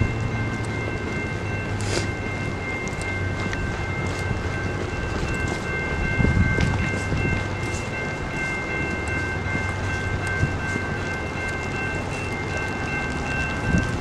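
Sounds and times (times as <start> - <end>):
train low hum: 0.0 - 14.0
train rumble: 0.0 - 14.0.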